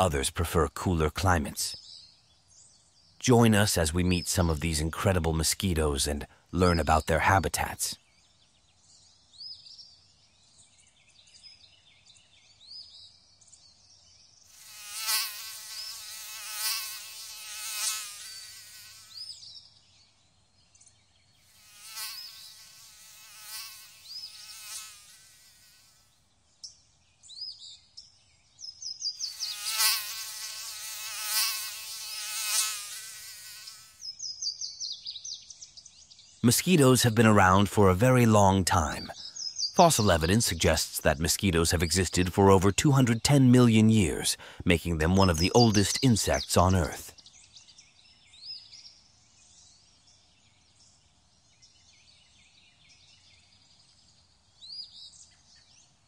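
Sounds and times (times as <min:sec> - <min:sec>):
mosquitoes whining: 0:14.5 - 0:19.5, 0:21.5 - 0:26.1, 0:29.2 - 0:34.1.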